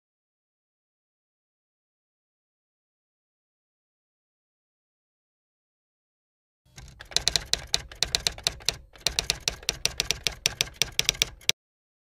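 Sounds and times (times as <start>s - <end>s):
typewriter key clacks: 6.7s - 11.6s.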